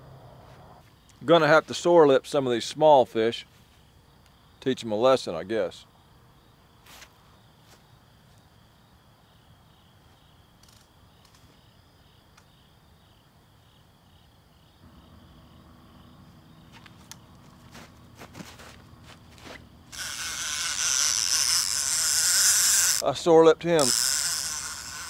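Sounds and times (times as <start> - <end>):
crickets chirping: 0.0 - 25.0
low steady hum: 14.8 - 23.1.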